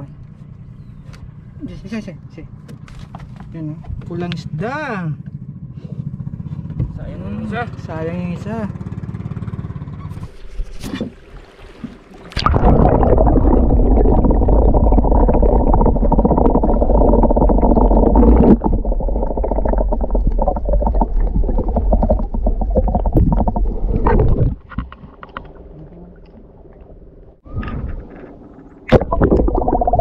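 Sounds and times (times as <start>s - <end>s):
muffled underwater rumble: 12.4s - 30.0s.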